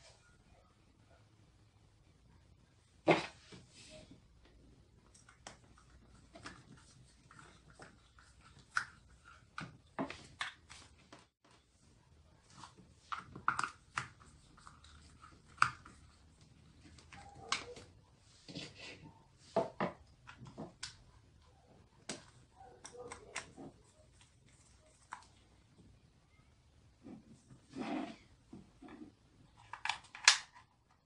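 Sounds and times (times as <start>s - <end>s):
plastic housing clicks and squeaks: 17.0s - 17.9s.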